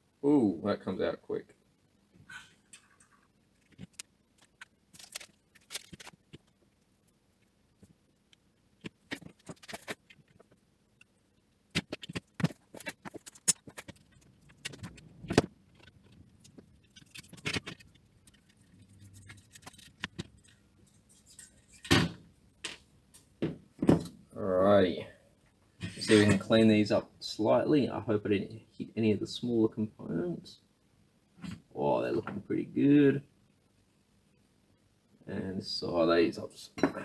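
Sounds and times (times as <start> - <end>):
tools clicking and scraping on board: 11.8 - 21.9.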